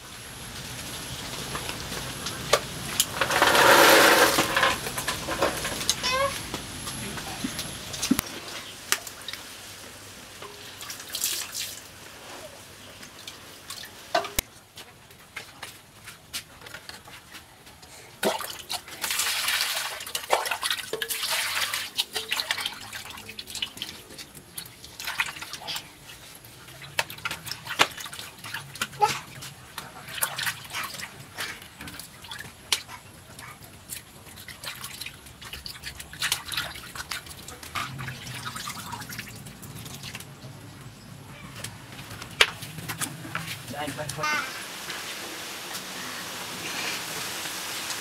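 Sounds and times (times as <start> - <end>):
water sloshing and splashing: 18.2 - 40.6.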